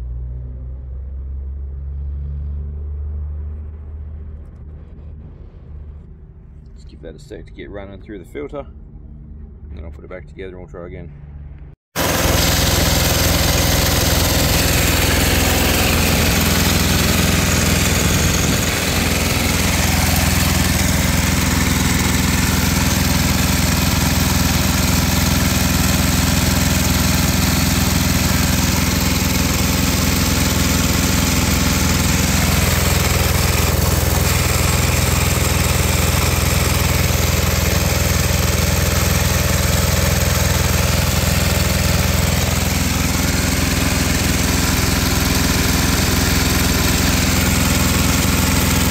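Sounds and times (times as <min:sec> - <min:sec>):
diesel generator engine running: 0:11.2 - 0:48.9.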